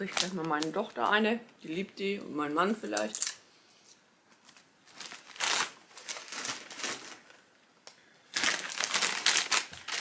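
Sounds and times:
plastic bags crinkling: 0.0s - 1.0s, 4.4s - 10.0s.

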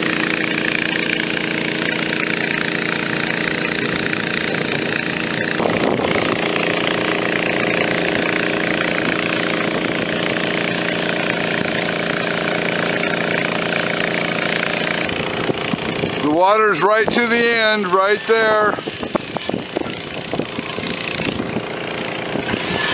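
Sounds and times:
engine-driven water pump running: 0.0s - 22.9s.

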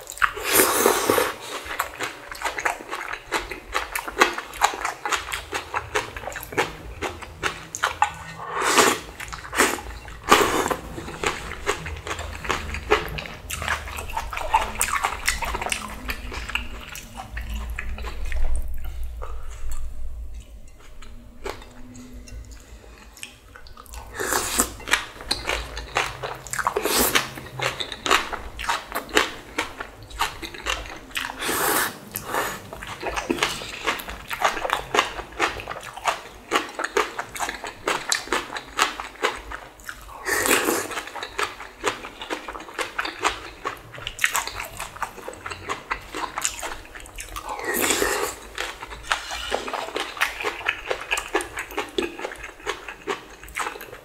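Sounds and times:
wet chewing and crunching: 0.0s - 54.0s
slurping noodles: 0.2s - 1.8s, 8.0s - 17.0s, 24.1s - 29.4s, 31.2s - 35.2s, 47.4s - 52.4s.

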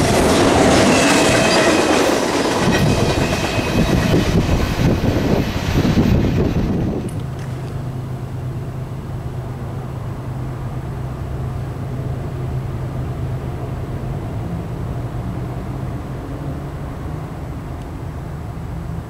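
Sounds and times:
freight train clattering on rails: 0.0s - 8.0s.

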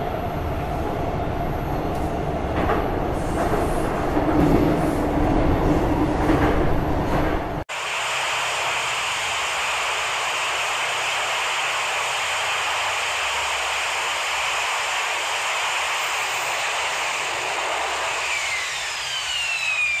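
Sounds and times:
falling jet whine: 7.7s - 20.0s
jet engine roaring: 7.7s - 20.0s.

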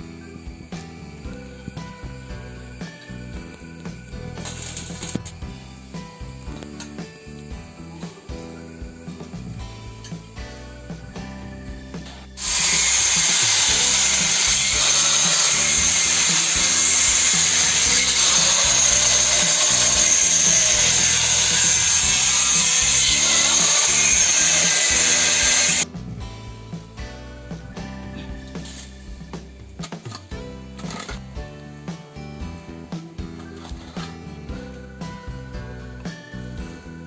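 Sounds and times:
background music: 0.0s - 37.0s
angle grinder cutting steel: 4.4s - 5.3s, 12.1s - 25.8s.

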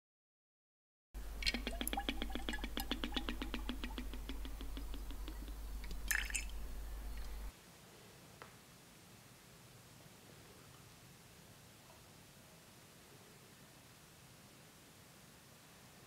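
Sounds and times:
low hum: 1.2s - 7.5s
liquid glugging into a glass: 1.4s - 4.2s, 5.8s - 6.6s.

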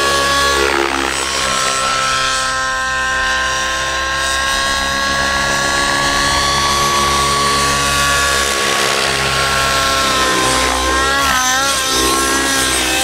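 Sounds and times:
model helicopter engine whine: 0.0s - 13.0s.

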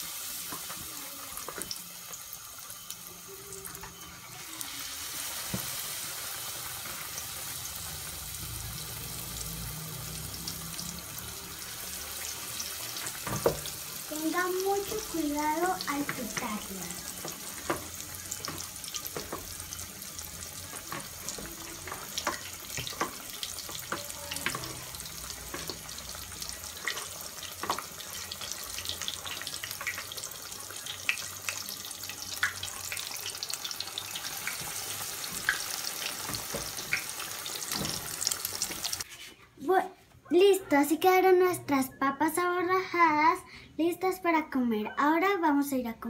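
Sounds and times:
potatoes sizzling in hot oil: 0.0s - 39.1s
oil crackling and popping: 20.6s - 39.1s.

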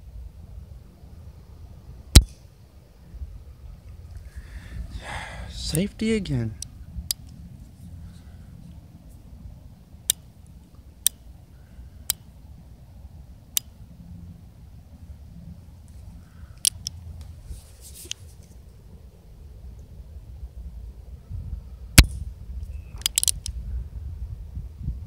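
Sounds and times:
faint outdoor background noise: 0.0s - 25.0s
pistol handling clicks: 2.2s - 2.4s, 6.6s - 7.4s, 10.1s - 11.2s, 16.6s - 17.0s, 23.0s - 23.6s.

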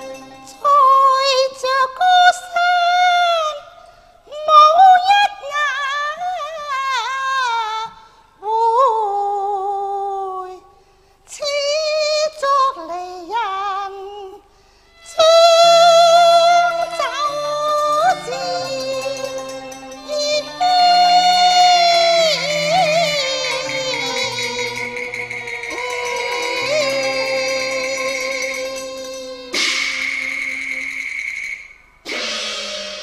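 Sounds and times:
low instrumental accompaniment: 15.0s - 30.8s
woman singing opera: 15.1s - 30.0s.

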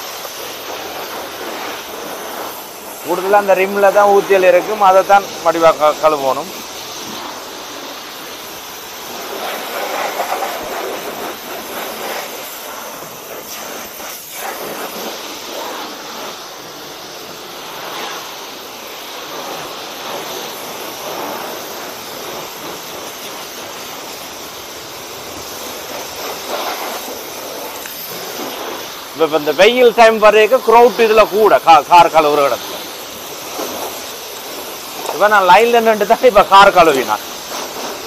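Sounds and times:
pressure washer spraying car: 0.0s - 38.0s.

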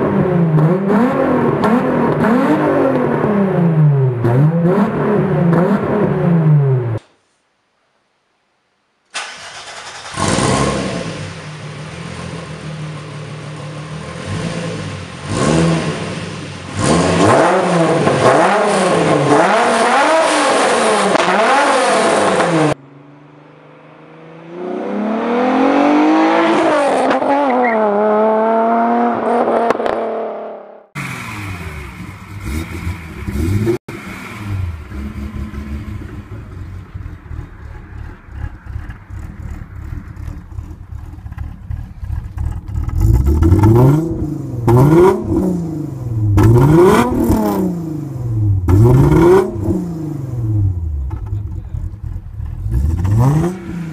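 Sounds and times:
car accelerating: 0.0s - 7.0s, 9.2s - 53.9s
car engine revving: 0.0s - 7.0s, 9.2s - 53.9s
car engine idling: 11.3s - 14.3s, 31.0s - 44.8s, 50.3s - 53.9s.

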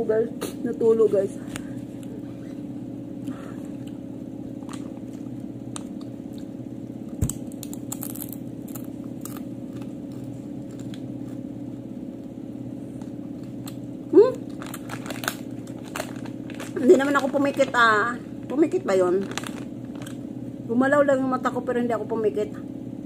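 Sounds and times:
steady low hum: 0.0s - 23.0s
chips being crunched: 7.1s - 11.4s, 14.4s - 17.8s, 19.2s - 20.2s.

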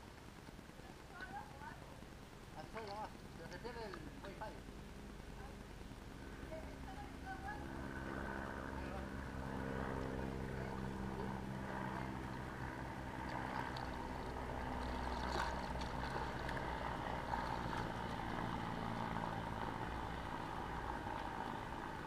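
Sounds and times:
light water movement: 0.0s - 22.0s
low mechanical hum: 0.0s - 22.0s
water splash: 12.2s - 19.8s.

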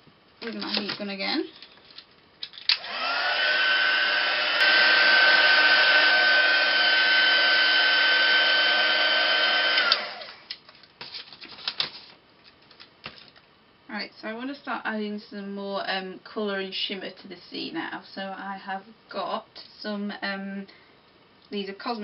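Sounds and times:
heat gun fan whine: 2.6s - 10.6s.

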